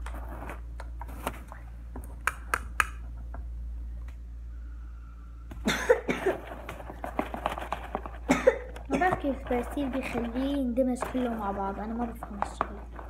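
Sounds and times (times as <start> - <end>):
person coughing: 5.6 - 6.5, 8.2 - 9.2
person speaking: 8.8 - 13.0.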